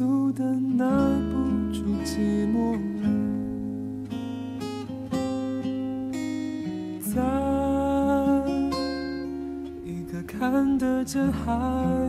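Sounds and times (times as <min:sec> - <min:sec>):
soft pop ballad singing: 0:00.0 - 0:03.6, 0:07.0 - 0:12.0
acoustic guitar: 0:00.0 - 0:12.0.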